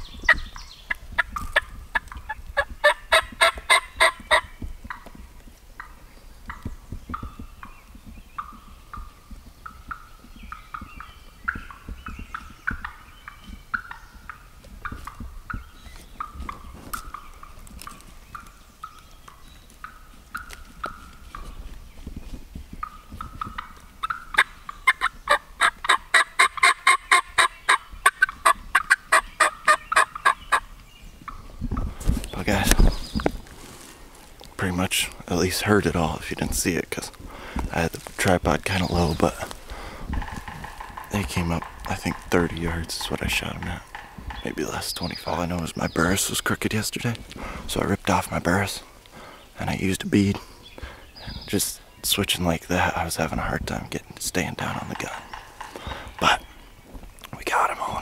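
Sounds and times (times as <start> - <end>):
turkey calling: 0.0 - 5.2, 5.8 - 7.7, 8.4 - 21.6, 22.8 - 32.8, 36.9 - 46.5, 54.6 - 56.7.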